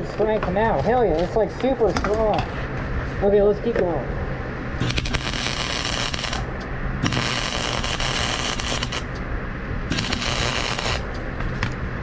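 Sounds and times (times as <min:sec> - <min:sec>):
arc welder crackling and hissing: 0:04.7 - 0:11.8.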